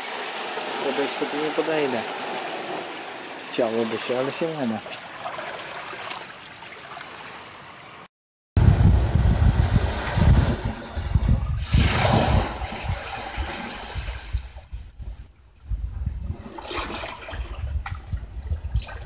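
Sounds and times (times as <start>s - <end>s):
water surging and draining: 0.0s - 8.1s, 9.4s - 14.6s, 16.3s - 19.0s
wind rumbling on microphone: 8.6s - 19.0s.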